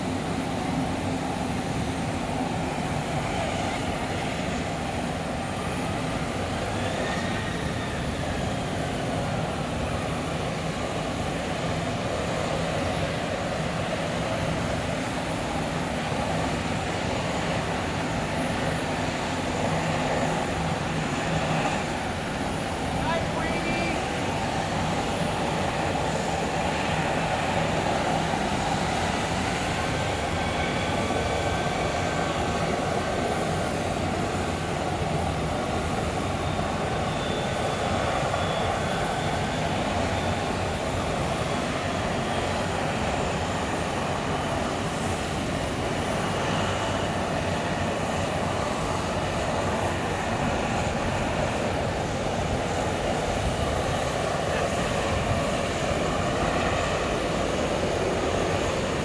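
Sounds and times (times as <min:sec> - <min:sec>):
jet engine rumble and whine: 0:00.0 - 0:59.0.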